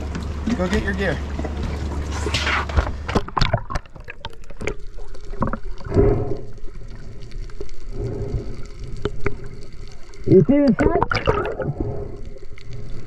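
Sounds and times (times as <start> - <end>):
sharp splashes and bubble pops: 2.2 - 6.2, 10.2 - 11.9
muffled underwater gurgling: 7.9 - 13.0.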